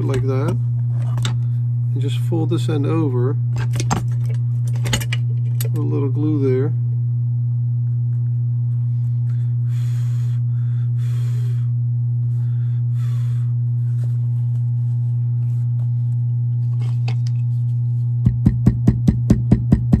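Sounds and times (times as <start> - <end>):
loud low hum: 0.0 - 20.0.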